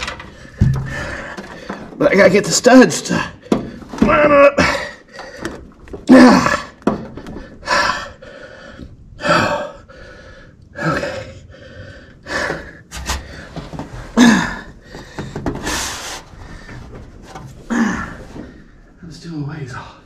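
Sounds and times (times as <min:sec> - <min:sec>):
man breathing hard: 0:00.1 - 0:02.0, 0:06.8 - 0:17.0
man grunting: 0:06.1 - 0:06.7.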